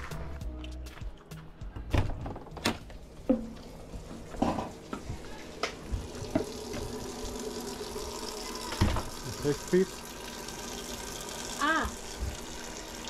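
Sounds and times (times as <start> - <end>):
faucet running into metal sink: 3.3 - 13.0.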